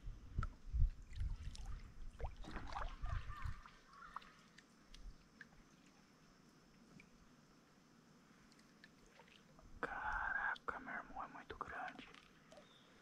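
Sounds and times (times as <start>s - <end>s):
water dripping and trickling: 0.4s - 7.2s
kayak paddle strokes in water: 1.0s - 6.1s.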